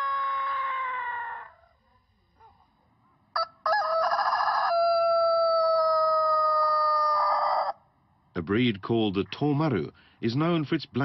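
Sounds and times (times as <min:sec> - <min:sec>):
rooster crowing: 0:00.0 - 0:01.6, 0:03.4 - 0:07.8.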